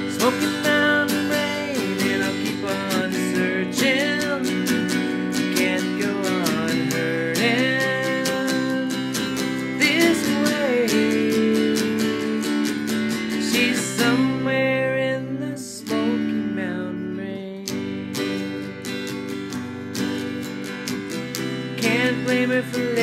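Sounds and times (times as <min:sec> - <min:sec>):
electric guitar strummed and picked: 0:00.0 - 0:23.0.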